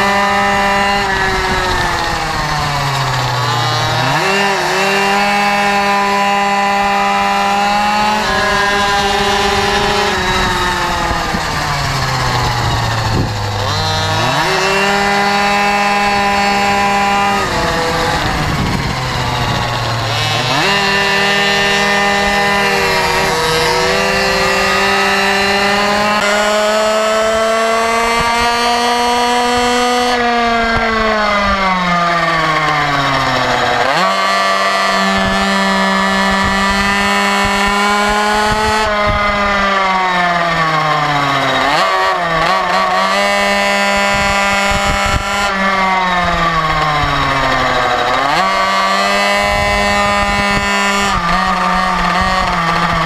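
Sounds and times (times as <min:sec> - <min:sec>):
motorcycle engine at high revs: 0:00.0 - 0:53.0
wind rush: 0:08.3 - 0:13.8, 0:15.1 - 0:26.4.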